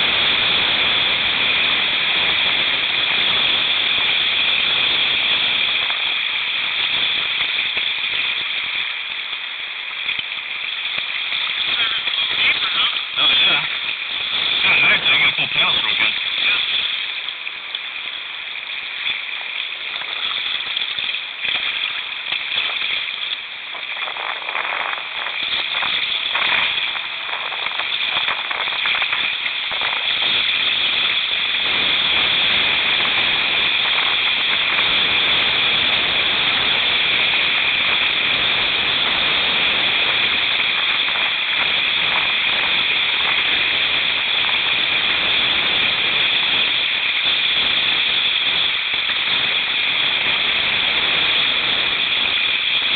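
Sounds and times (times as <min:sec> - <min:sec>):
water splashes: 0:00.0 - 0:52.9
whitewater rapids rushing: 0:09.9 - 0:38.6.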